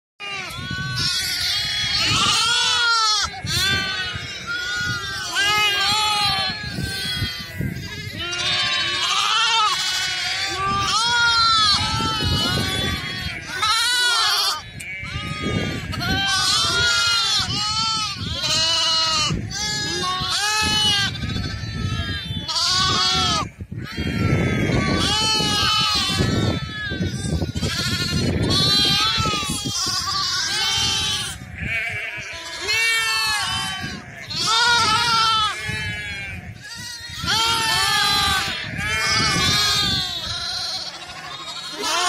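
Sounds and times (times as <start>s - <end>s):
lambs and goat kids bleating: 0.2s - 42.0s.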